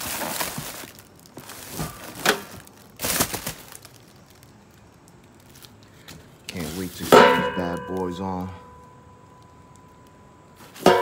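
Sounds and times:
plastic wrap crinkling: 0:00.0 - 0:08.6.

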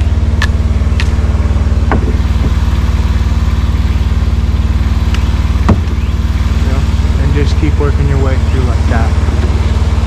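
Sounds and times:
engine idling: 0:00.0 - 0:10.0.

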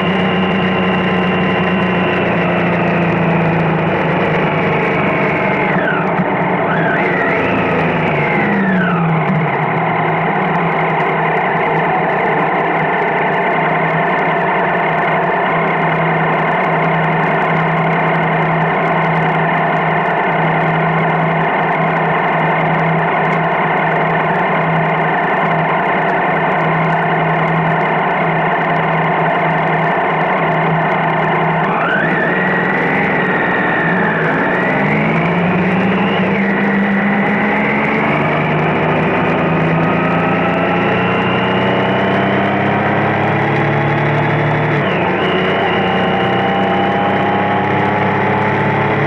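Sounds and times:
whistling tones gliding: 0:00.0 - 0:03.2, 0:29.4 - 0:38.5, 0:39.2 - 0:49.0
vehicle engine idling: 0:00.0 - 0:48.9.

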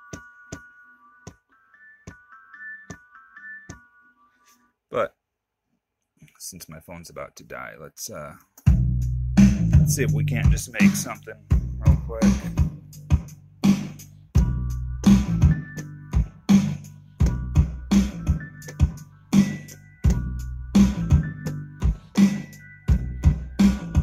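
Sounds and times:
hip-hop drum beat with bass: 0:08.6 - 0:24.0
sampled melodic chops: 0:08.6 - 0:24.0.

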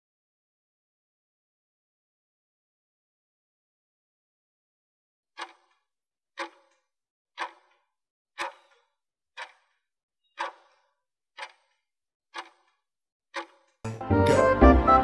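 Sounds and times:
timer ticking: 0:05.4 - 0:05.8, 0:06.4 - 0:06.8, 0:07.4 - 0:07.8, 0:08.4 - 0:08.8, 0:09.4 - 0:09.7, 0:10.4 - 0:10.8, 0:11.4 - 0:11.8, 0:12.4 - 0:12.7, 0:13.4 - 0:14.4.

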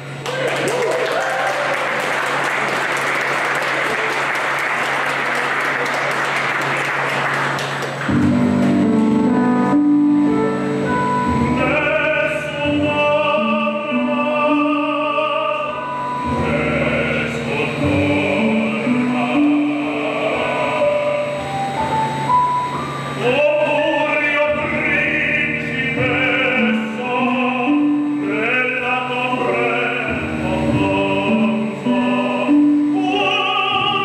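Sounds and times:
audience applauding: 0:00.2 - 0:08.3
men singing opera: 0:11.4 - 0:21.6, 0:23.2 - 0:34.0.

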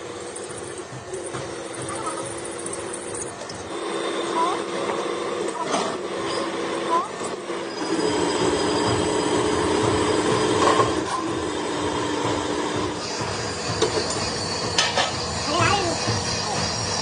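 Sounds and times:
drill press humming: 0:00.0 - 0:17.0
drill bit scraping steel: 0:06.0 - 0:17.0.

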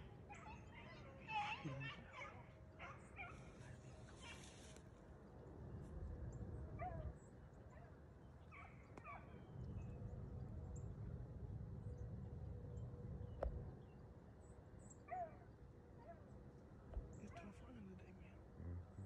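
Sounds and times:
distant dogs baying: 0:00.0 - 0:04.4.

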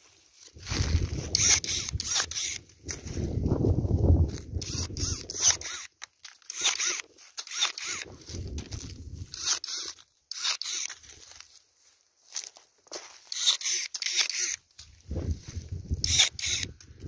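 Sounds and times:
pruning shears snipping: 0:01.3 - 0:03.0, 0:04.4 - 0:11.0, 0:13.3 - 0:14.6, 0:16.0 - 0:16.9.

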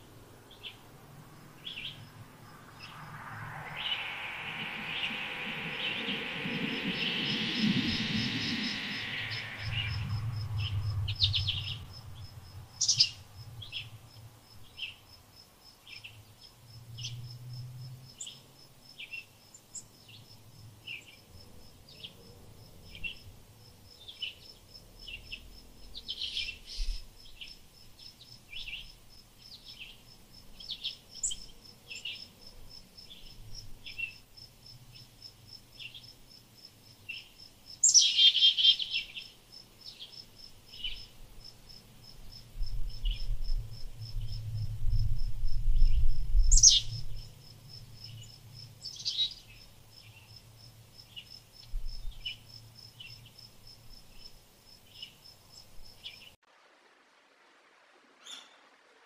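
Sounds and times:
songbirds chirping: 0:00.0 - 0:17.3
cricket trilling: 0:00.4 - 0:14.9, 0:30.6 - 0:56.2.

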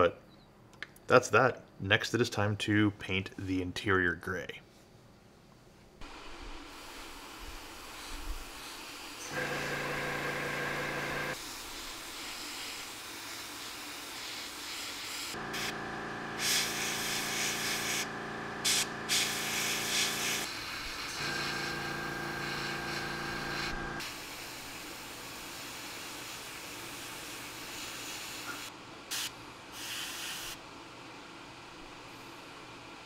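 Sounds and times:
airbrush hissing: 0:06.8 - 0:24.8
compressor humming: 0:09.2 - 0:11.4, 0:15.4 - 0:24.1.

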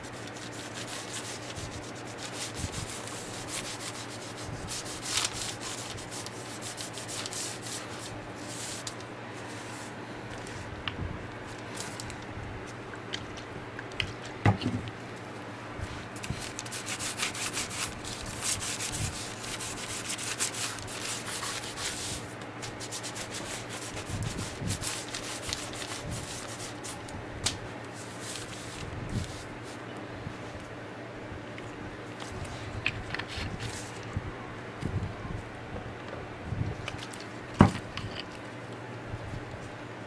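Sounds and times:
pad rubbing on leather: 0:00.0 - 0:09.9.

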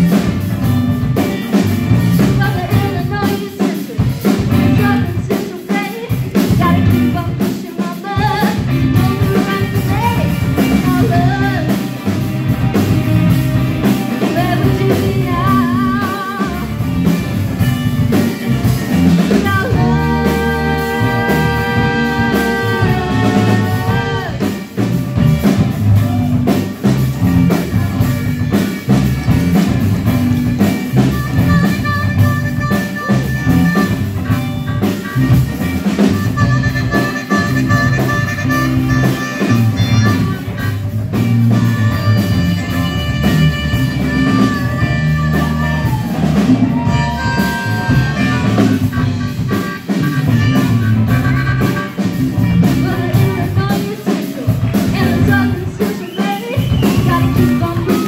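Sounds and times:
live rock band playing: 0:00.0 - 0:58.0
harmonica solo bending notes: 0:15.5 - 0:24.7, 0:30.4 - 0:53.6.

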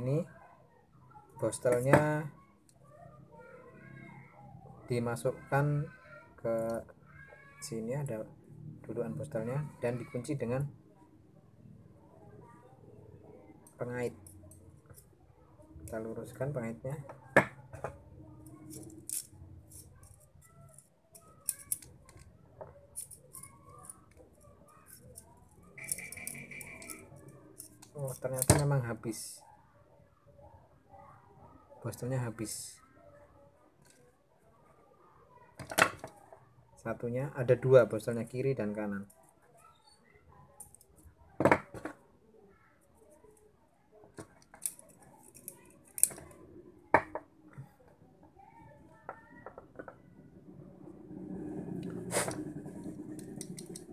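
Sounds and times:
small metal clicks and scrapes: 0:18.4 - 0:22.3, 0:22.9 - 0:28.5, 0:44.2 - 0:46.4, 0:51.8 - 0:53.9.

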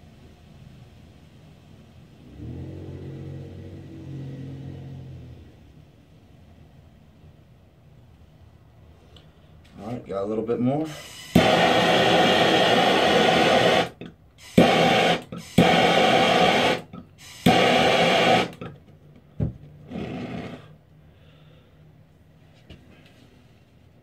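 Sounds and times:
propane torch flame hissing: 0:10.8 - 0:18.7, 0:19.9 - 0:20.8
torch ignition click: 0:10.9 - 0:18.7.

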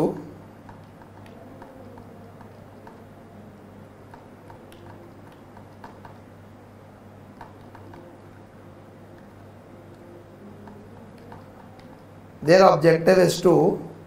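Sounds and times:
low electrical hum: 0:00.0 - 0:14.0
laptop keys clicking: 0:00.6 - 0:06.3, 0:07.3 - 0:08.5, 0:09.1 - 0:12.2.

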